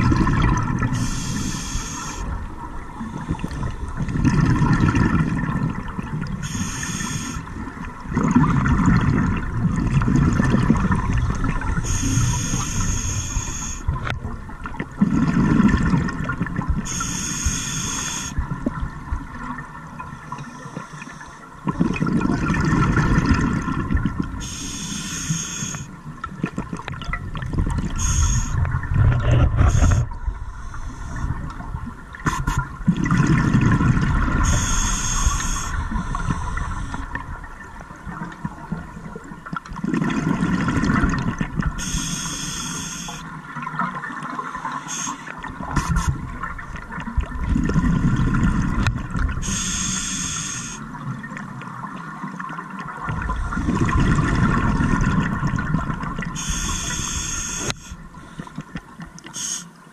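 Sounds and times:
exhaled bubbles gurgling: 0:00.0 - 0:59.9
regulator breaths hissing: 0:01.0 - 0:02.3, 0:06.4 - 0:07.5, 0:11.8 - 0:13.8, 0:16.9 - 0:18.4, 0:24.4 - 0:25.9, 0:28.0 - 0:28.6, 0:34.4 - 0:37.0, 0:41.8 - 0:43.3, 0:44.6 - 0:46.1, 0:49.4 - 0:50.9, 0:56.4 - 0:58.5, 0:59.3 - 0:59.7.

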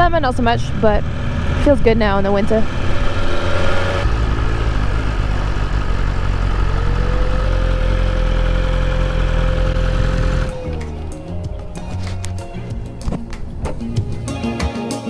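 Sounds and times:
motorcycle engine idling: 0:04.1 - 0:14.3.

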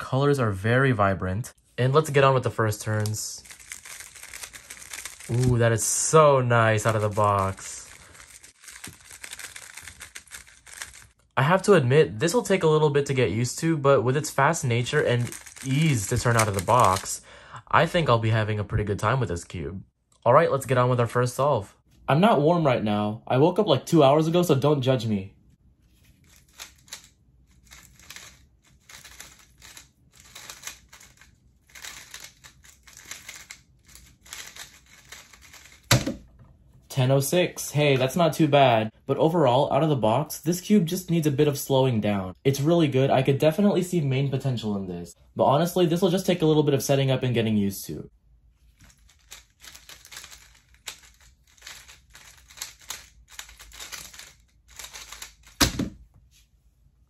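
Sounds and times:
rasping plastic clicks of puzzle cube: 0:26.4 - 0:35.9, 0:48.8 - 0:55.6.

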